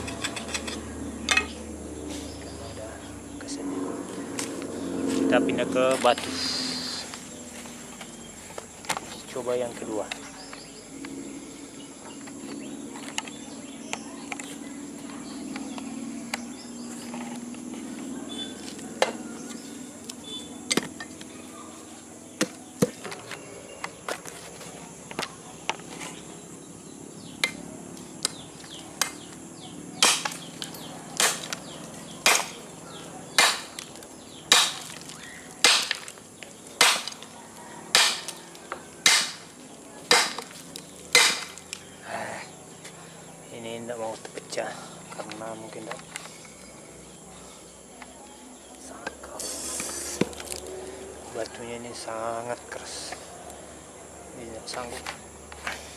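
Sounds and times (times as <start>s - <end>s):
machete striking rock: 30.0s - 30.4s, 31.2s - 31.6s, 32.2s - 32.6s, 33.3s - 33.9s, 34.5s - 35.0s, 35.6s - 36.1s, 36.8s - 37.3s, 37.9s - 38.4s, 39.0s - 39.5s, 40.1s - 40.5s, 41.1s - 41.6s.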